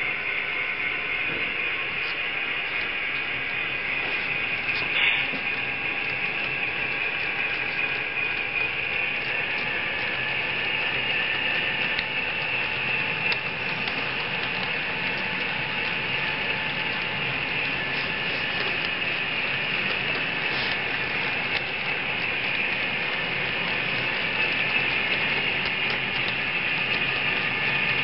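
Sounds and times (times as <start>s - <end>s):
model train wheels rolling on rail: 0.0s - 28.0s.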